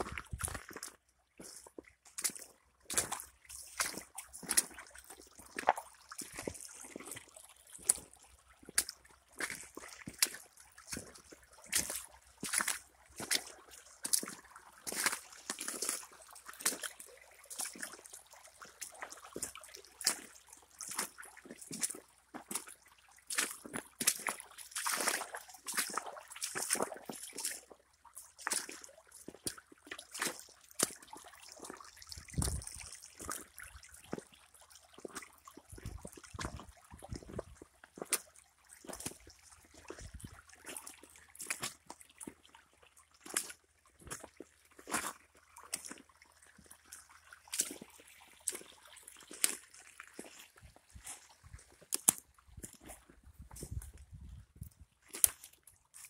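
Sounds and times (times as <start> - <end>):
footsteps splashing through creek: 0.0 - 56.0
water trickling over gravel: 0.0 - 56.0
sharp splashes: 22.5 - 34.2.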